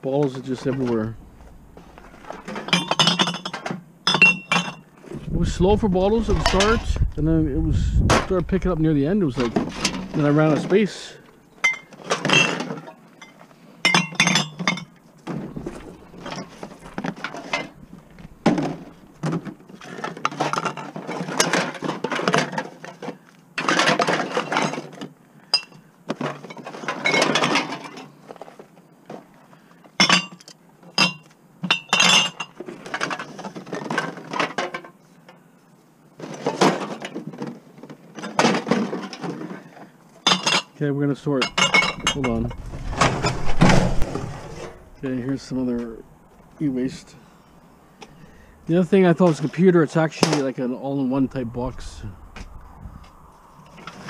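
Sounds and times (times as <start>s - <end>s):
glass bottles and cans clinking: 2.3s - 4.9s, 11.6s - 17.8s, 25.5s - 28.0s, 30.0s - 34.9s, 40.2s - 40.8s, 41.4s - 42.6s.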